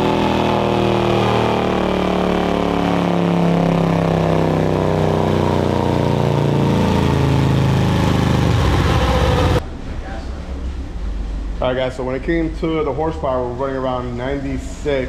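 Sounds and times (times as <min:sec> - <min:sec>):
motorcycle engine running loud: 0:00.0 - 0:09.6.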